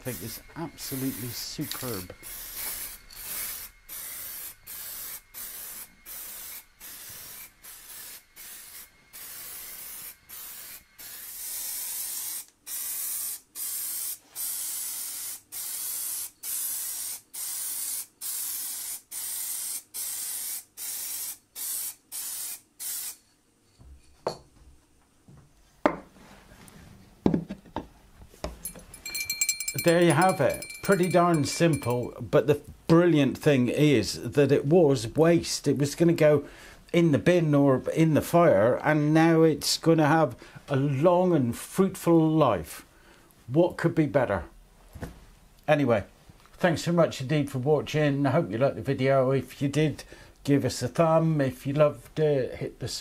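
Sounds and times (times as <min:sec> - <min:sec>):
aerosol can spraying bursts: 0:00.0 - 0:23.2.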